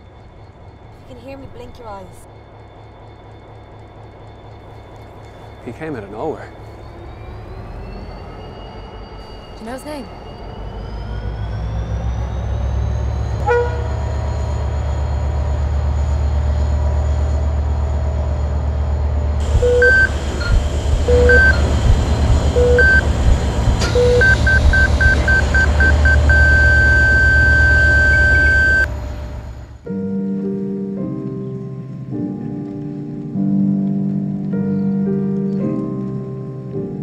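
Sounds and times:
deep low rumble: 6.5 - 30.4
heart monitor beeps: 19.4 - 28.9.

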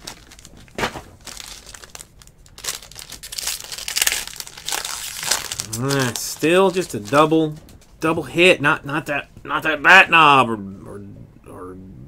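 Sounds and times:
foil wrapper crinkling: 0.0 - 7.6.

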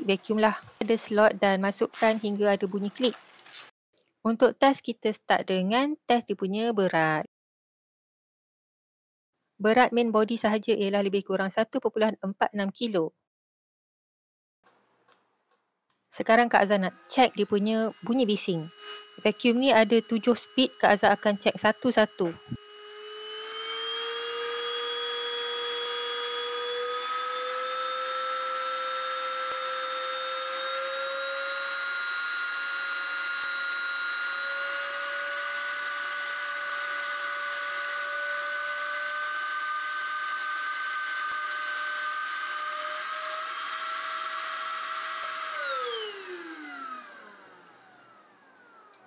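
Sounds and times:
vacuum motor whining: 16.7 - 49.0.

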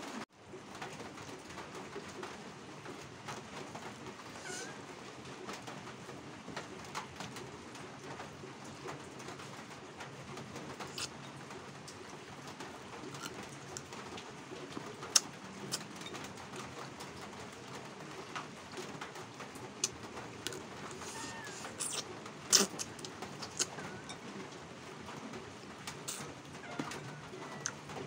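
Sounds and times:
person chewing: 10.9 - 11.1, 19.8 - 24.2, 26.0 - 26.2.

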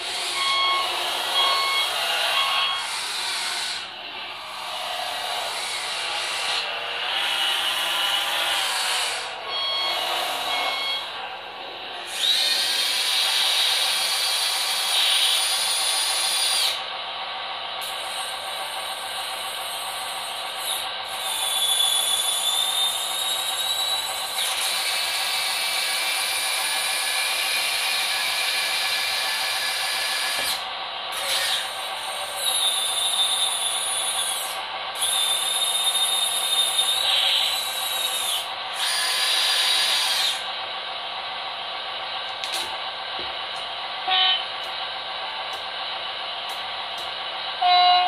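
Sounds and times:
electric motors whining: 0.0 - 17.0, 17.8 - 41.0
toy engine sound from small speaker: 12.0 - 16.9, 17.8 - 40.5.

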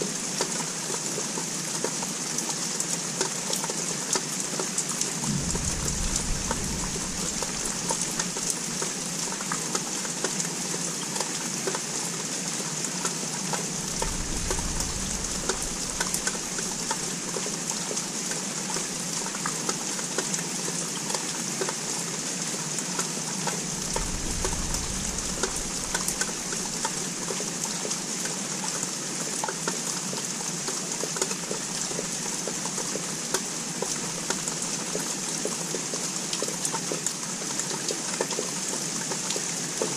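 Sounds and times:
steady rain hiss: 0.0 - 39.9
low thunder rumbles: 5.2 - 9.9, 13.6 - 19.5, 23.3 - 28.0
raindrop ticks: 5.2 - 10.4, 13.0 - 18.0, 23.4 - 28.0.

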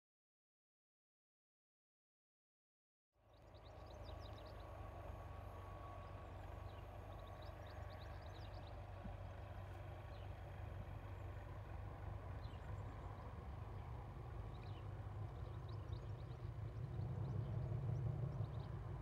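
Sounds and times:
distant diesel locomotive rumble: 3.2 - 19.0
birds chirping: 5.9 - 19.0.

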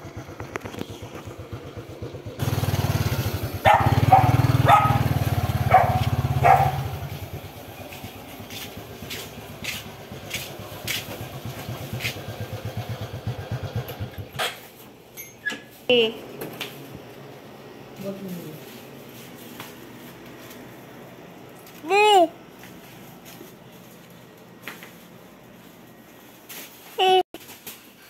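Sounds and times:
small motorcycle engine running: 0.0 - 14.4
dog barking: 3.6 - 7.1.

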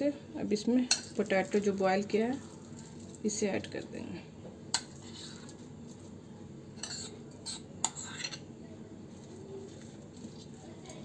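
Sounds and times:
spoon scraping mashed potato: 0.9 - 3.8, 4.7 - 6.2, 6.8 - 11.0.

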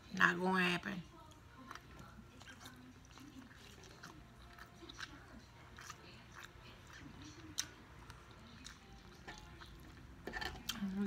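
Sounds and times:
person chewing: 1.2 - 10.9.

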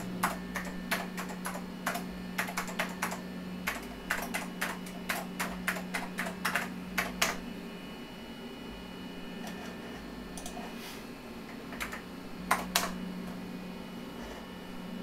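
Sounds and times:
keyboard typing: 0.0 - 7.4, 11.5 - 13.0
steady low hum: 0.0 - 15.0.

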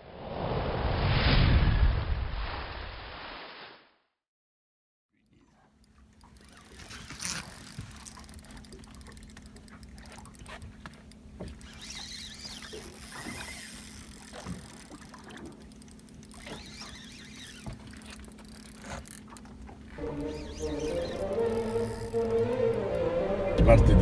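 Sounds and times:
wind: 0.0 - 3.4, 5.1 - 24.0
water noise: 5.2 - 24.0
boat engine hum: 5.3 - 24.0
faint high squeaks: 6.4 - 23.0.

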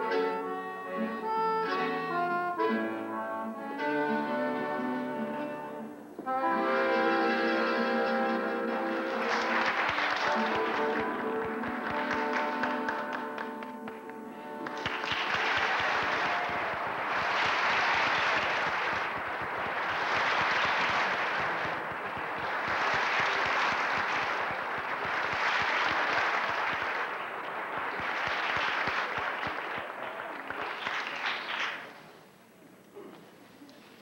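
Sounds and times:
audience applauding: 8.7 - 32.1.

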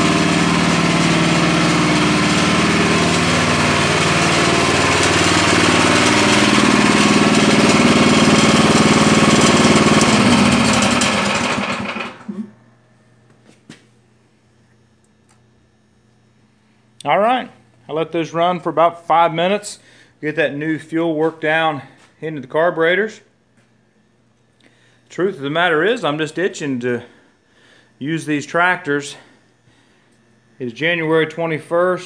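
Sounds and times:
garden tractor engines running: 0.0 - 12.4, 24.6 - 32.0.

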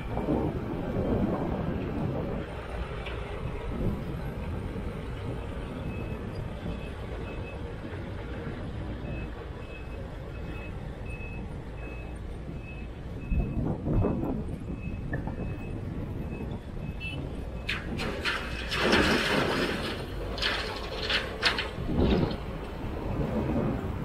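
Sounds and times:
diesel engines running: 0.0 - 24.0
reversing alarm beeping: 9.0 - 17.7
rumbling clatter: 17.5 - 24.0.

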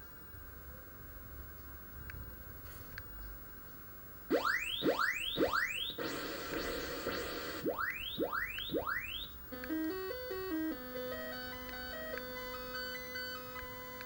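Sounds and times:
computer rising chirps: 4.3 - 9.4
stepped beeping tune: 4.3 - 14.0.

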